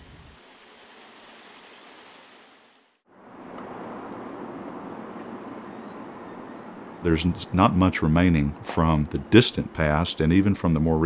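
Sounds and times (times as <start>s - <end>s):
waterfall splashing into pool: 0.0s - 3.0s
outdoor rushing ambience: 2.0s - 11.0s.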